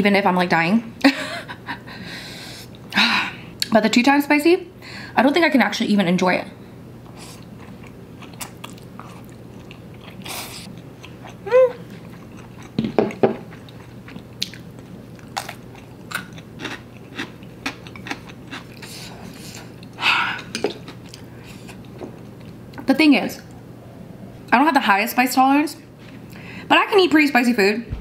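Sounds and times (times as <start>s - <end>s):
wet chewing and lip smacks: 7.3s - 20.0s
person humming: 11.4s - 11.8s.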